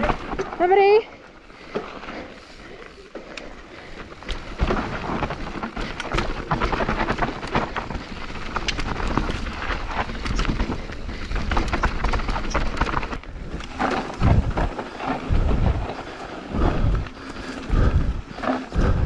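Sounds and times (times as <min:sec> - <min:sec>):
bike tyre rumble on dirt: 0:00.0 - 0:19.0
bike clattering over bumps: 0:03.8 - 0:19.0.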